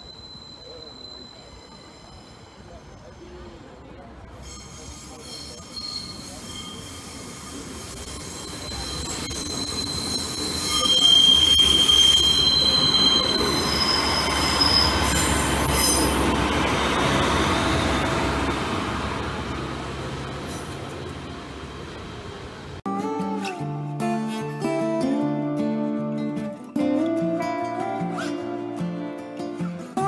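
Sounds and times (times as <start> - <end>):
train wheels squealing: 0.0 - 3.7, 4.4 - 18.5
low train rumble: 0.0 - 22.8.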